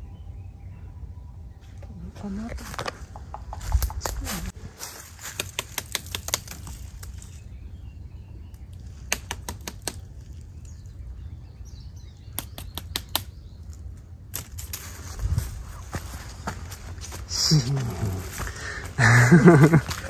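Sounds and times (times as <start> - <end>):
sharp taps on tree trunk: 2.8 - 4.3, 5.2 - 7.3, 9.0 - 10.1, 12.4 - 13.4.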